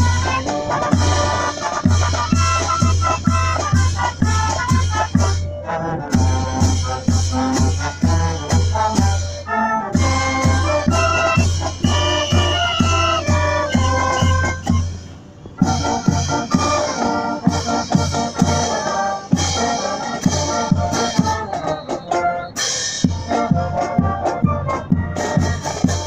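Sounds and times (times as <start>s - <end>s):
marching band playing: 0.0s - 26.0s
drum beat: 10.0s - 16.4s.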